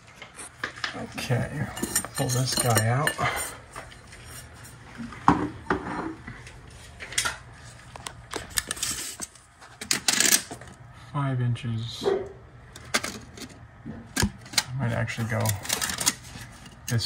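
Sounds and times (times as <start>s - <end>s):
metal tools clinking: 1.3s - 3.6s
metal parts clattering: 8.6s - 10.5s, 15.2s - 17.0s.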